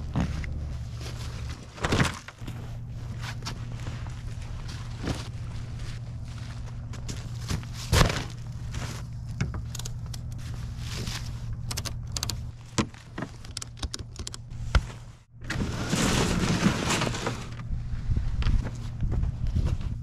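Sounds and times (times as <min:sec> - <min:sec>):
crunching: 0:00.0 - 0:15.1.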